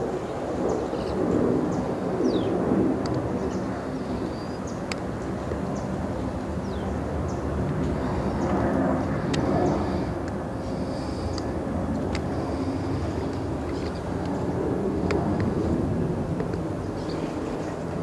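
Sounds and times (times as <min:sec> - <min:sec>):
steady low rumble: 0:00.0 - 0:18.0
small birds chirping: 0:00.7 - 0:02.5, 0:03.4 - 0:07.5, 0:09.3 - 0:14.4, 0:16.5 - 0:18.0.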